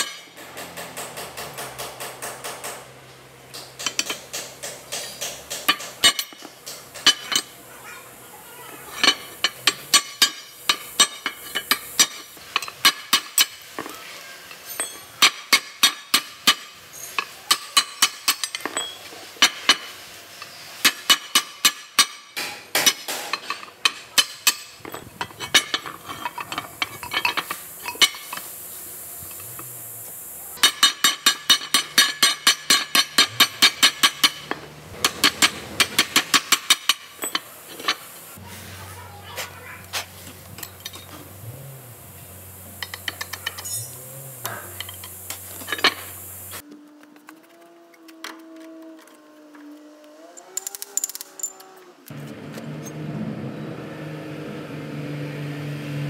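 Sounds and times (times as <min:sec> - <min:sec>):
hammer striking metal: 0:30.6 - 0:37.5.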